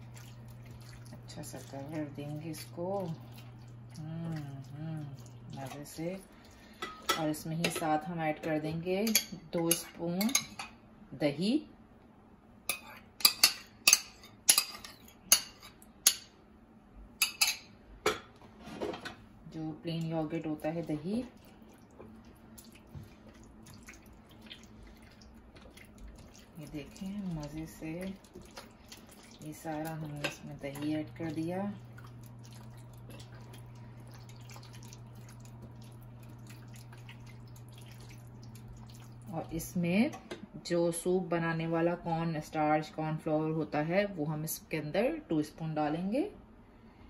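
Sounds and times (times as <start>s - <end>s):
wet squelching of food mixing: 0.0s - 10.6s, 19.4s - 40.4s
low electrical hum: 0.0s - 47.0s
metal tongs clinking on ceramic bowls: 9.0s - 10.7s.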